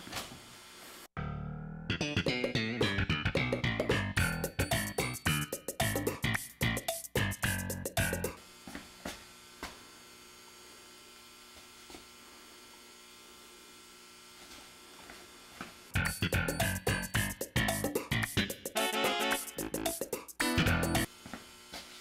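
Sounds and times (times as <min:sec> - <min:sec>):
music: 0:01.2 - 0:08.4, 0:16.0 - 0:21.1.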